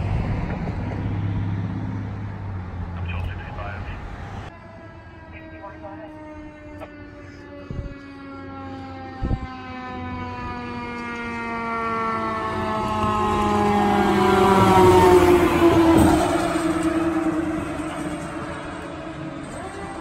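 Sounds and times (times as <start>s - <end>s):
truck engine and road noise: 0.0s - 20.0s
mechanical siren winding down: 4.6s - 20.0s.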